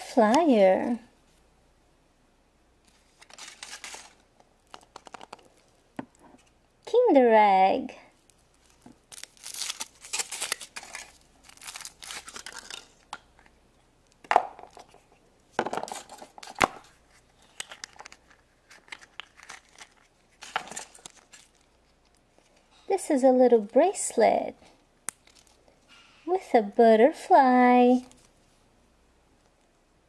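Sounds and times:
foil wrapper crinkling and tearing: 0:03.1 - 0:05.8, 0:08.2 - 0:13.1, 0:16.0 - 0:22.5, 0:25.1 - 0:25.6
plastic capsule snapping open: 0:04.7 - 0:05.5.

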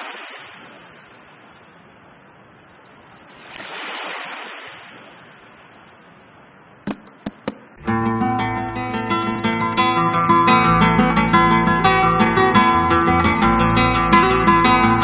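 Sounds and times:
sharp clicks: 0:06.9 - 0:07.8
acoustic guitar music: 0:06.9 - 0:15.0.

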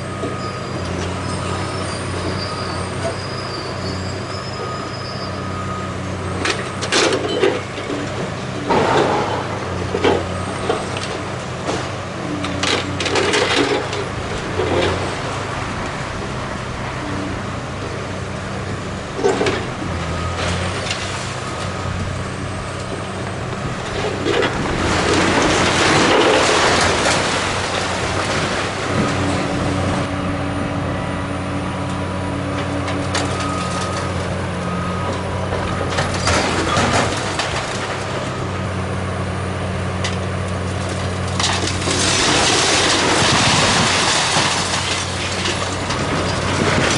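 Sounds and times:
excavator diesel engine running: 0:00.0 - 0:46.9
bricks and rubble crashing down: 0:23.9 - 0:29.2, 0:35.5 - 0:38.2, 0:40.9 - 0:46.9.

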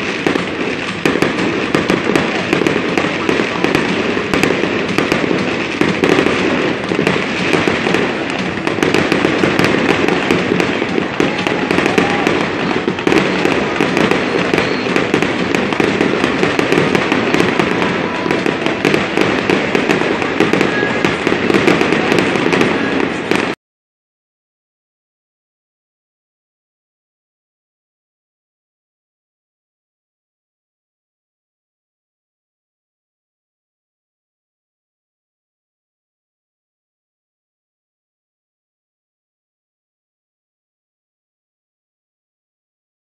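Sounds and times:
fireworks pops and crackles: 0:00.0 - 0:23.6.

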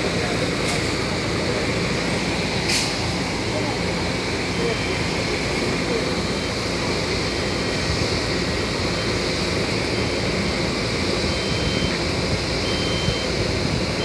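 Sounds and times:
diesel truck engine running: 0:00.0 - 0:14.0
faint reversing beep: 0:04.4 - 0:08.0, 0:08.8 - 0:10.5, 0:11.2 - 0:13.4.

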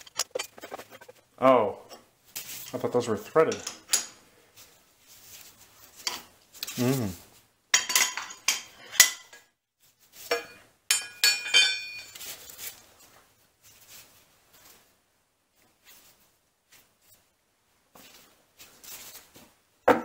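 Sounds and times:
metal parts clinking and knocking: 0:00.0 - 0:01.2, 0:10.3 - 0:12.3
short vocal sound: 0:06.6 - 0:07.3.

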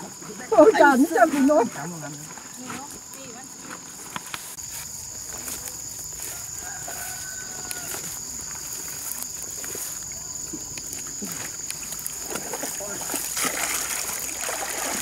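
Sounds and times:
rooster crowing faintly: 0:06.2 - 0:08.2.

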